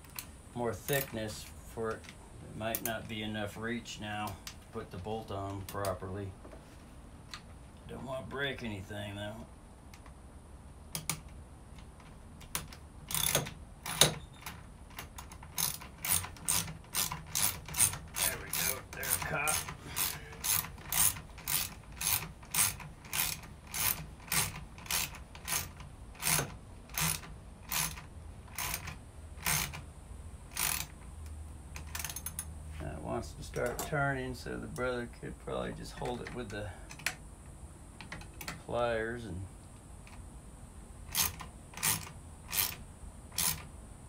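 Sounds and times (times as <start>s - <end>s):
ratchet wrench clicking: 12.4s - 14.1s, 14.9s - 29.8s, 30.5s - 31.0s, 31.8s - 32.5s, 41.1s - 42.8s, 43.4s - 43.7s.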